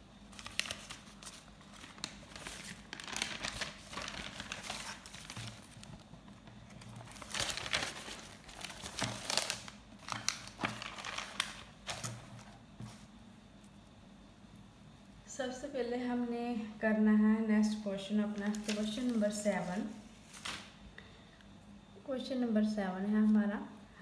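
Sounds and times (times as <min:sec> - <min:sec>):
paper pages rustling: 0:00.3 - 0:13.1, 0:18.3 - 0:20.8.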